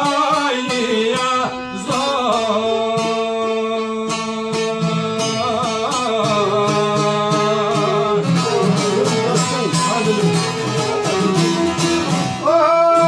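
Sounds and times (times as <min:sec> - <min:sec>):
man singing: 0:00.0 - 0:13.0
strummed lute: 0:00.0 - 0:13.0
violin: 0:04.5 - 0:13.0.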